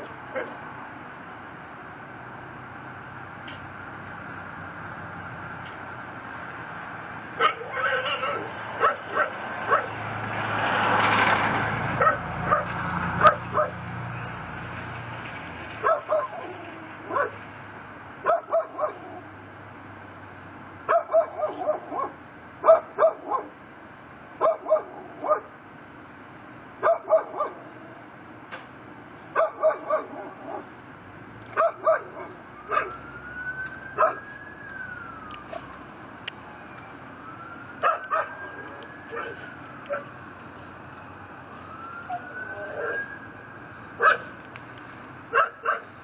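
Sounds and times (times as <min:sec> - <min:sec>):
passing vehicle: 0:00.0 - 0:46.0
dog barking: 0:07.4 - 0:10.0, 0:12.0 - 0:13.8, 0:15.8 - 0:17.4, 0:18.2 - 0:19.2, 0:20.9 - 0:23.5, 0:24.4 - 0:25.5, 0:26.8 - 0:27.7, 0:29.4 - 0:30.7, 0:31.6 - 0:33.0, 0:34.0 - 0:34.2, 0:37.8 - 0:38.5, 0:42.7 - 0:43.0, 0:44.0 - 0:44.3, 0:45.3 - 0:45.9
siren: 0:31.9 - 0:44.4.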